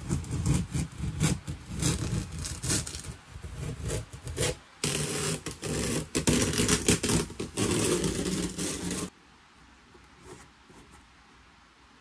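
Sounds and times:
paper towel scraping and crinkling: 0.0s - 9.1s.

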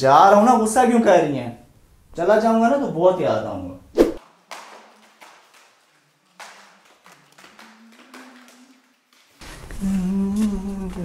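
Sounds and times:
person humming: 9.7s - 11.0s.

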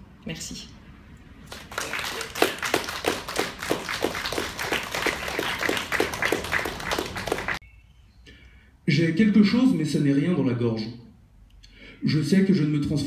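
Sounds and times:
audience applauding: 1.5s - 7.6s
loud individual claps: 1.5s - 7.6s.

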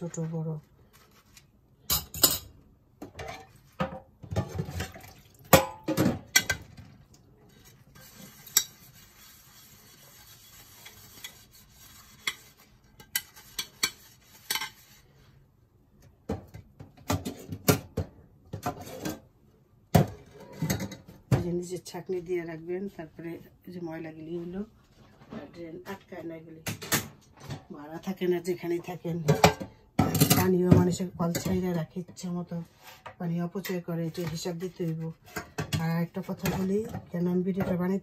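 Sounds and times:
dishes clattering in a metal sink: 1.8s - 7.1s, 12.1s - 14.9s, 16.2s - 19.3s, 19.9s - 21.5s, 26.6s - 27.8s, 29.2s - 32.3s, 35.2s - 38.0s.

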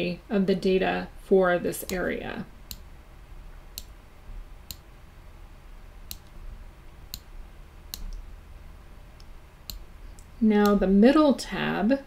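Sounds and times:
faint low hum: 0.0s - 12.0s
computer mouse clicking: 3.7s - 4.0s, 6.0s - 6.4s, 7.9s - 8.3s, 9.2s - 10.8s.

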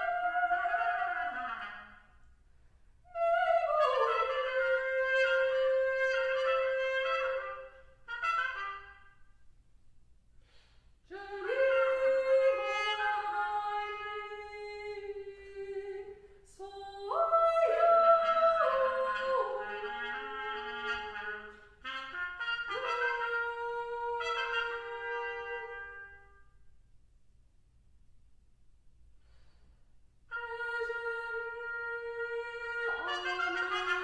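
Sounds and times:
solo trumpet playing long notes: 0.0s - 2.2s, 3.0s - 9.4s, 11.4s - 14.8s, 17.7s - 26.7s, 30.3s - 34.0s.

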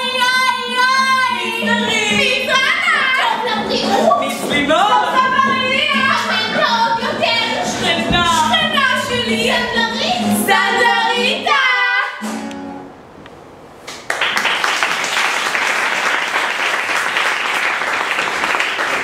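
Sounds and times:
woman singing: 0.0s - 12.2s
audience applauding: 13.9s - 19.0s.

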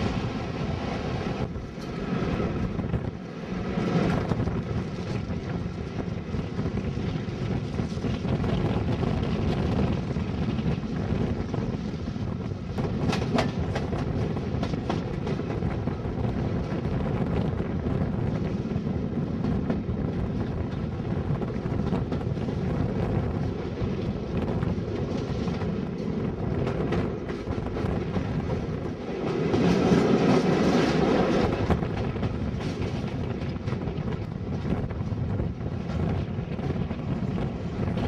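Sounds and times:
train wheels rumbling on rails: 0.0s - 38.0s.

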